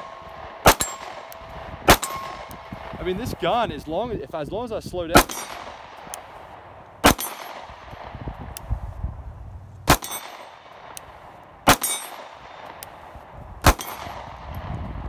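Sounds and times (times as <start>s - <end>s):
pistol shots: 0.0s - 3.9s, 5.1s - 8.2s, 9.9s - 14.5s.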